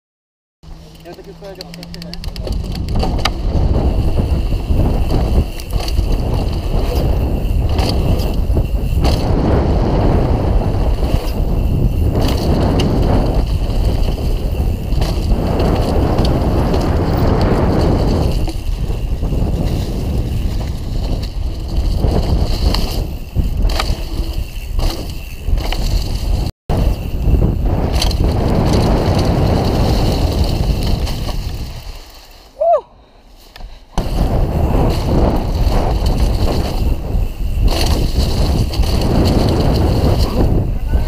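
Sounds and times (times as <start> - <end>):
wind rumble on microphone: 0.7 - 32.0, 33.9 - 41.0
bike tyres rattling on dirt: 0.7 - 32.6, 33.3 - 41.0.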